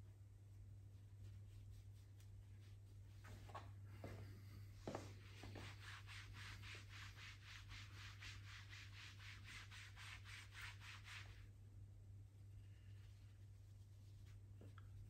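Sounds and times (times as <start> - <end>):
hands rubbing fabric: 0.9 - 11.5.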